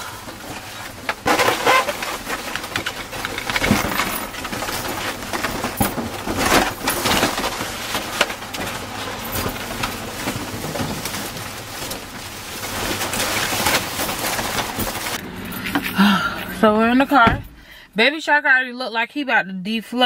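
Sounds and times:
balloons rustling and crinkling: 0.0 - 15.2.

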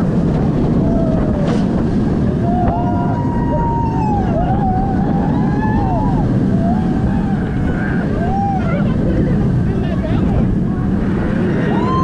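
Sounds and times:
roller coaster rumbling on track: 0.0 - 12.0
rushing wind: 0.0 - 12.0
riders screaming: 2.3 - 8.8, 11.5 - 12.0.

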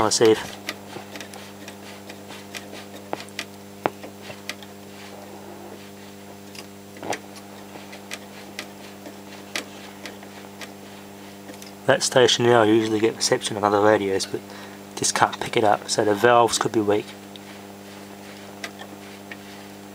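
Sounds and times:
radio clicks and crackles: 0.0 - 11.8
radio mains hum: 0.0 - 19.9.

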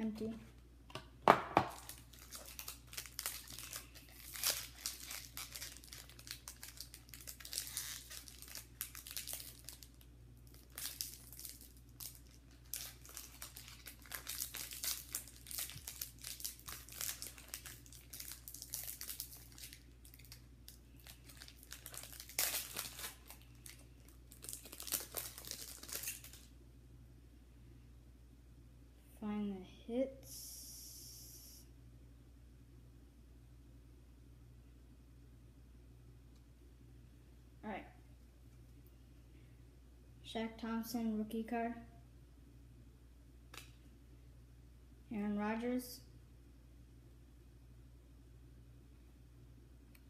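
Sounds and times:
foil wrapper crinkling and tearing: 1.6 - 26.5.

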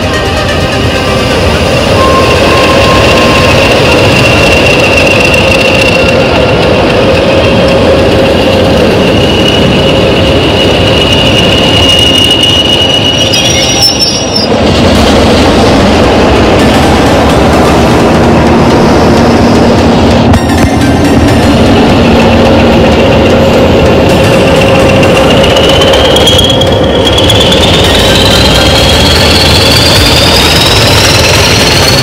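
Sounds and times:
diesel locomotives passing: 0.0 - 32.0
high squeal: 1.6 - 14.6, 21.7 - 32.0.

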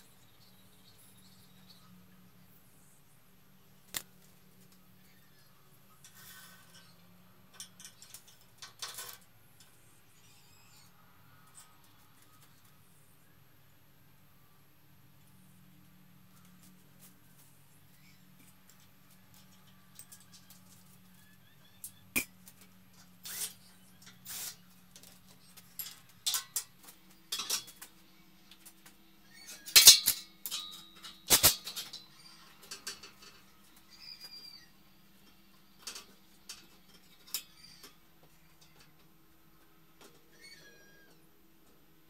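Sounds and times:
faint low hum: 0.0 - 42.0
metal tools clinking: 23.0 - 27.8, 29.4 - 33.6.

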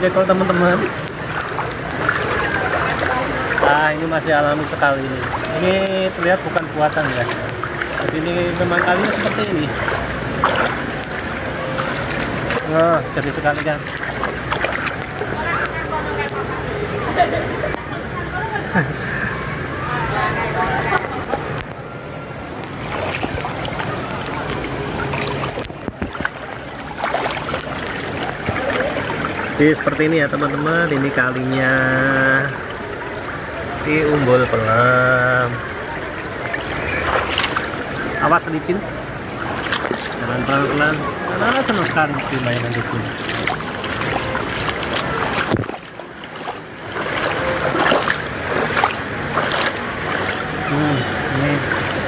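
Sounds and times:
stream water flowing and splashing: 0.0 - 52.0.

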